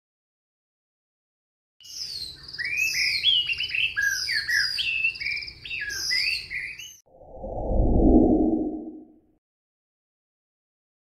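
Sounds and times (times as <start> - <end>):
bird singing: 1.8 - 7.0.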